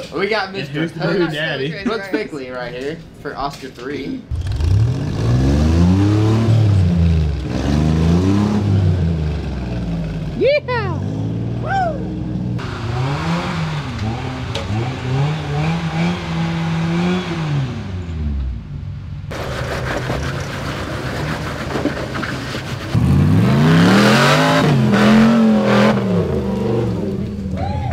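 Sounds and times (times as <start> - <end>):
off-road engines revving: 4.3 - 27.9.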